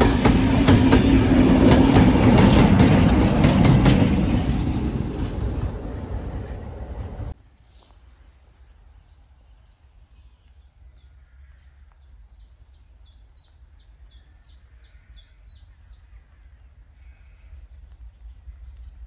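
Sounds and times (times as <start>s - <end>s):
low rumble: 0.4s - 7.4s
small bird singing: 9.0s - 19.0s.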